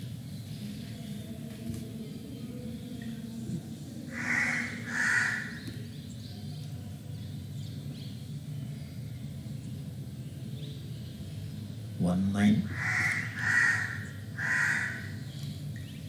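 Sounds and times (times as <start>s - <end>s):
low background hum: 0.0s - 16.0s
crow cawing: 4.1s - 5.6s, 12.6s - 15.3s.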